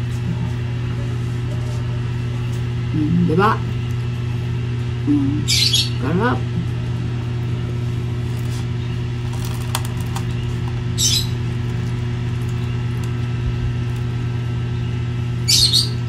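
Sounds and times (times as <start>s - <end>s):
low mechanical hum: 0.0s - 16.0s
high-pitched bird chirps: 5.4s - 6.1s, 11.0s - 11.4s, 14.8s - 16.0s.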